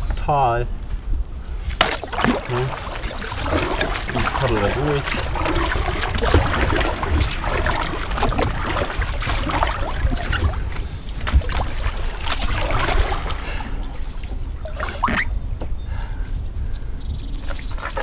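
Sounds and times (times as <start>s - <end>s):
kayak paddle dipping into water: 1.7s - 15.3s
water trickling off paddle: 1.8s - 15.5s.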